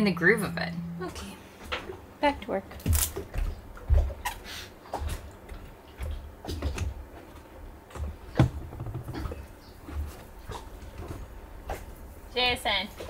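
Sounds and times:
items knocking on deck: 8.3 - 9.4.

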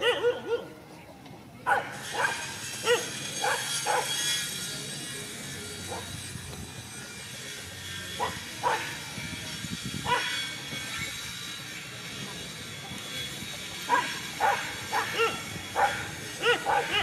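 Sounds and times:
dogs barking: 0.0 - 0.8, 1.6 - 4.2, 8.2 - 9.0, 10.0 - 10.4, 13.9 - 17.0.

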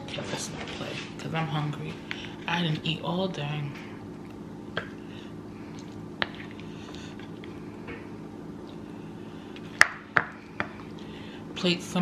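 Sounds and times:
steady low hum: 0.0 - 12.0
soft food squishes: 4.1 - 11.1.

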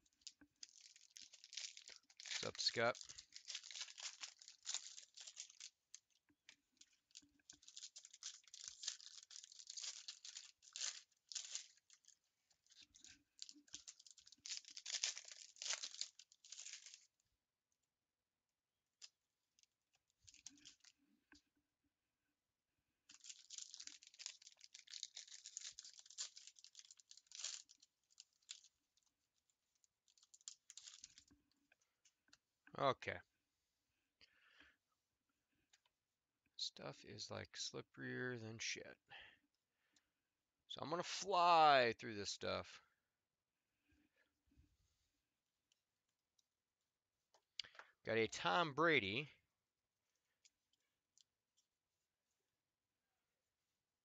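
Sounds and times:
foil wrappers tearing and crinkling: 0.2 - 5.7, 7.5 - 12.1, 12.7 - 17.0, 23.1 - 28.7, 30.2 - 31.2.

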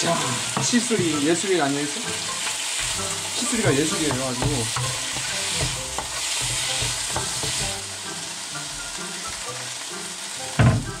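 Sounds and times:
food sizzling in a frying pan: 0.0 - 11.0
wooden spatula scraping a pan: 2.2 - 7.9.

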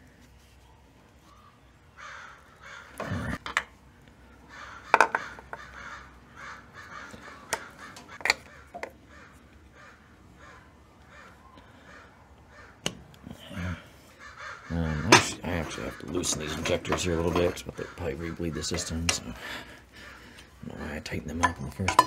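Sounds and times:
bird cawing: 1.3 - 21.0
hand tools clicking on metal: 15.1 - 17.7, 21.3 - 22.0.

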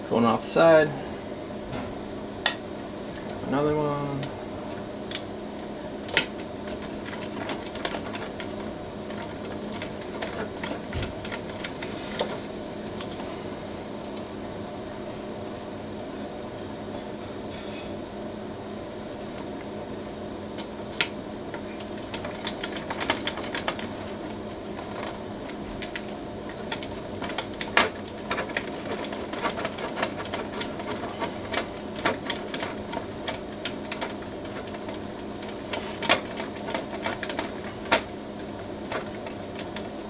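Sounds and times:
steady hum: 0.0 - 40.0.

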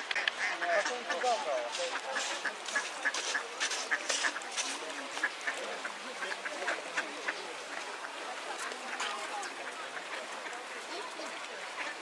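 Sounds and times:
ducks quacking: 0.0 - 12.0.

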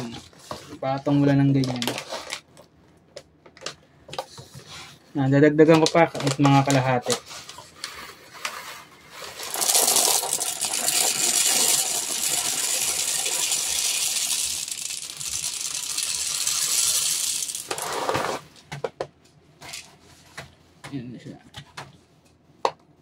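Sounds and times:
pellets pouring rattle: 7.9 - 18.5.

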